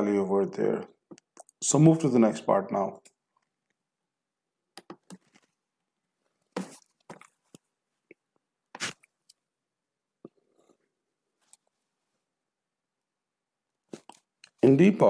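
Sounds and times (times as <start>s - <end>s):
small handling noises: 4.7s - 9.6s, 10.2s - 12.4s, 13.7s - 14.7s.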